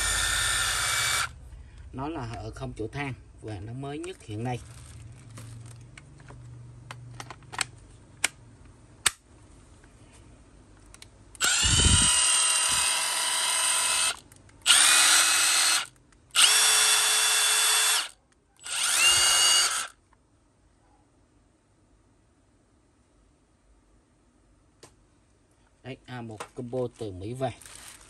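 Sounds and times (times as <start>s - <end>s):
impact driver motor whining: 0.0s - 1.4s, 11.4s - 19.9s.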